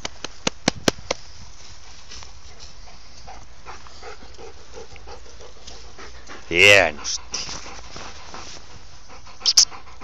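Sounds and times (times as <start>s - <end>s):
dog panting: 2.3s - 10.0s.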